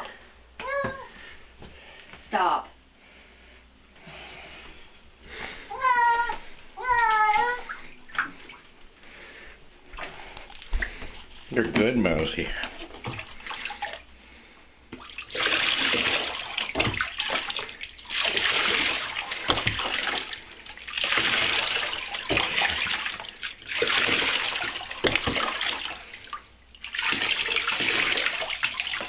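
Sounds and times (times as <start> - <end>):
water pouring and splashing: 9.9 - 14.1, 14.9 - 29.0.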